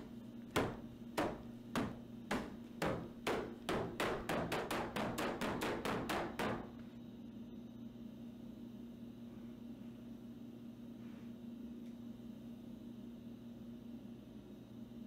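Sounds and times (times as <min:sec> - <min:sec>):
fists pounding on wooden boards: 0:00.5 - 0:06.7.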